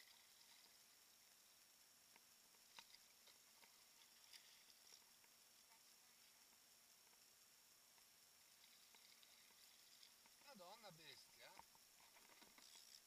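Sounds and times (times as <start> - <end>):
faint sharp ticks: 0.0 - 7.3.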